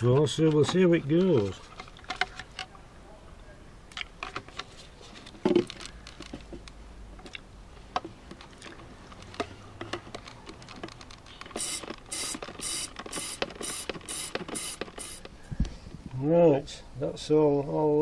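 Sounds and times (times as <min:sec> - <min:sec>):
pump bottle clunk: 0:00.0 - 0:02.7, 0:08.0 - 0:15.4
hand pump hissing air: 0:11.4 - 0:15.4.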